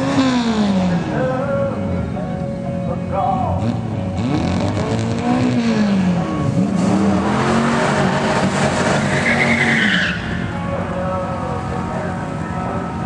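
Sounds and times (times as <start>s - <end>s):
car engine revving: 0.0s - 2.1s, 3.5s - 13.0s
tyre squeal: 8.7s - 10.4s.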